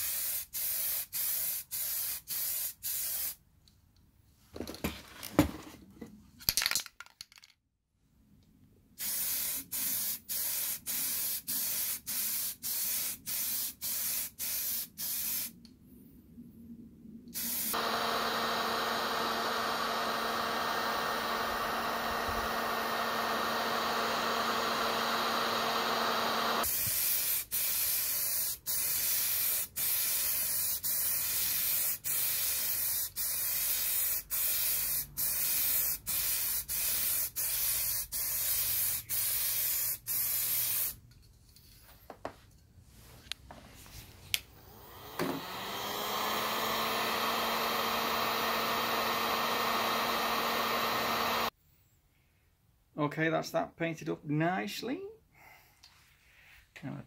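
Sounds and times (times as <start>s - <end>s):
spray can hissing: 0.0s - 3.4s, 9.0s - 15.6s, 17.4s - 17.8s, 26.6s - 41.0s
heat gun blowing: 17.4s - 41.0s, 44.4s - 51.5s.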